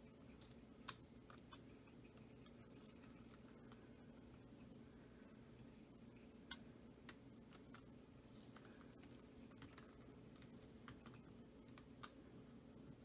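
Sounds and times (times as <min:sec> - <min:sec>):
paint dripping ticks: 0:08.6 - 0:12.2.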